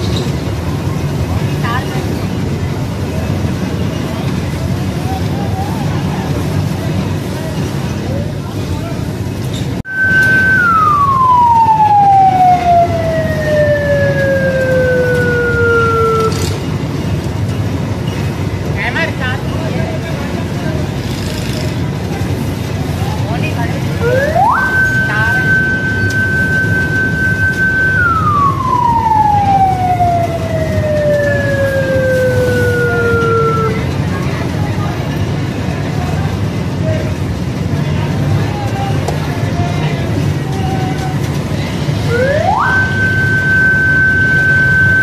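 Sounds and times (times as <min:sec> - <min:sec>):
truck engine rumble: 0:00.0 - 0:45.0
fire truck siren winding down: 0:09.9 - 0:16.7, 0:24.0 - 0:34.1, 0:42.0 - 0:45.0.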